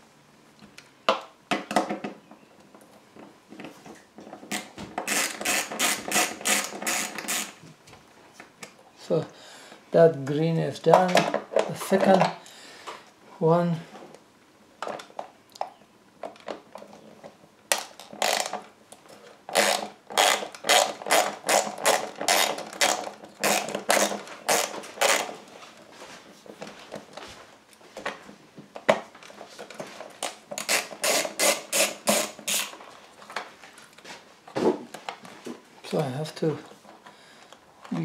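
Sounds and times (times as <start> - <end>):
ratchet clicking: 5.1 - 7.5.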